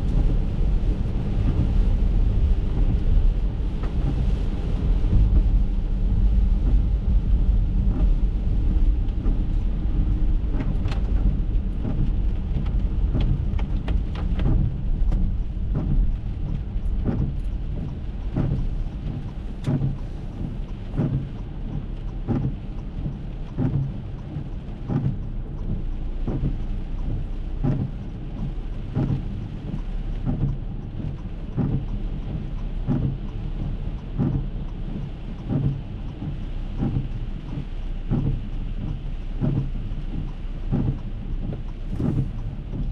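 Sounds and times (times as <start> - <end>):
heavy rain on car windshield: 0.0 - 42.9
low road rumble: 0.0 - 42.9
windshield wipers sweeping: 0.0 - 42.9.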